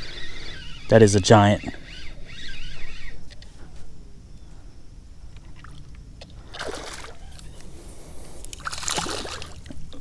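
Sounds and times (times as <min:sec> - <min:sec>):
light water sounds: 0:08.4 - 0:10.0
fish splashing at water surface: 0:08.6 - 0:09.7.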